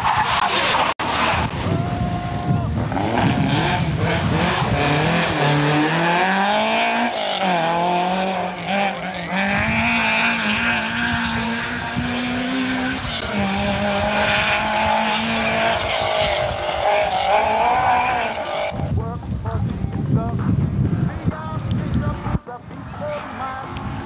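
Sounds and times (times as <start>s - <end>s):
rally car engine revving: 0.0s - 19.0s.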